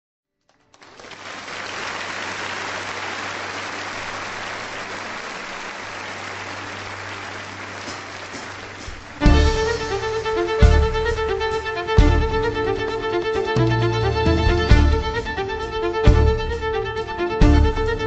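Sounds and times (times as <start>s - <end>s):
audience applauding: 0.5s - 10.6s.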